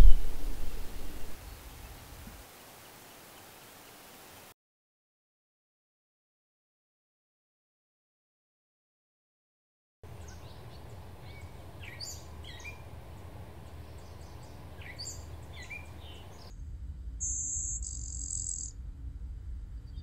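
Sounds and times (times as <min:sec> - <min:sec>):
buzzy high warbler song: 0:00.0 - 0:02.2, 0:10.0 - 0:16.6, 0:17.2 - 0:18.8
songbirds chirping: 0:00.0 - 0:04.4, 0:10.0 - 0:16.5
low background noise: 0:10.1 - 0:17.3.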